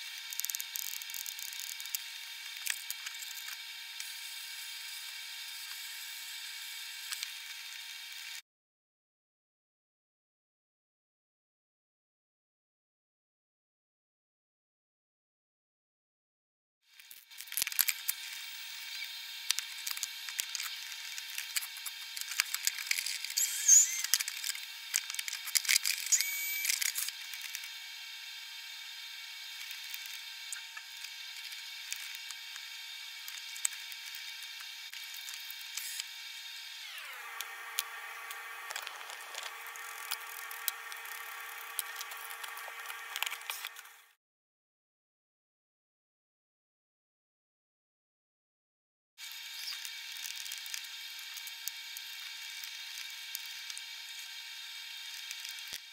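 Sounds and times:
steady multi-tone whine: 17.5 - 44.1.

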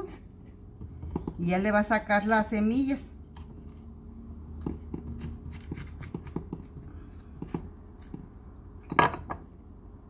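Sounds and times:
knife cutting on wooden board: 4.4 - 8.3.

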